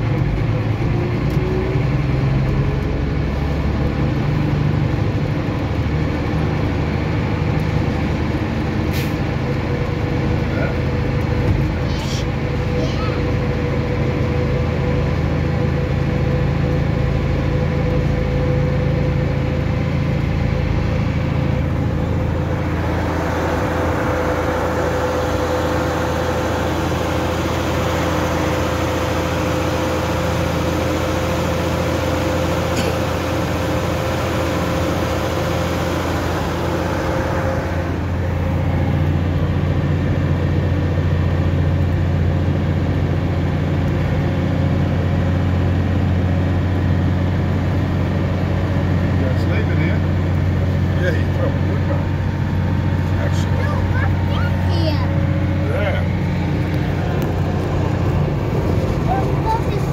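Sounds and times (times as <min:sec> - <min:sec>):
truck engine drone: 0:00.0 - 0:59.9
steady whine: 0:17.9 - 0:41.0, 0:49.2 - 0:59.9.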